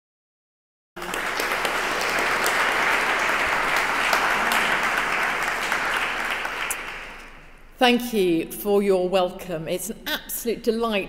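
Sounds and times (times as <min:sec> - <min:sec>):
audience applauding: 0:01.0 - 0:07.4.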